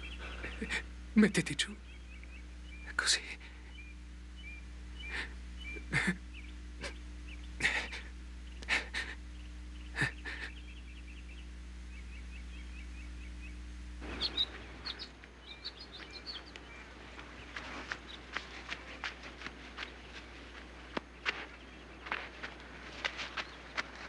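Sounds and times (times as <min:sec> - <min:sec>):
birds chirping: 0:00.0 - 0:24.0
steady low hum: 0:00.0 - 0:24.0
footsteps running on dry ground: 0:15.7 - 0:24.0.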